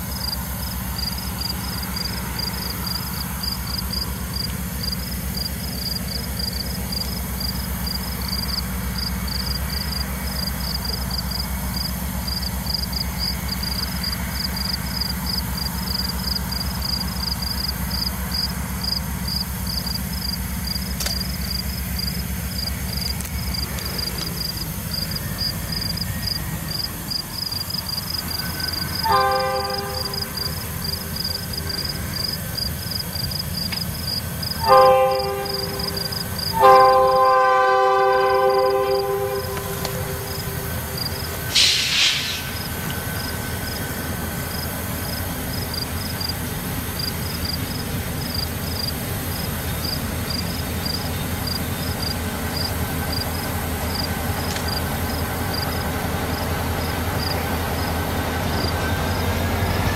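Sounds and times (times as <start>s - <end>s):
freight train rumbling: 0.0s - 59.9s
locomotive air horn blasts: 28.9s - 30.7s, 34.6s - 42.4s
short sharp noise: 38.9s - 42.9s.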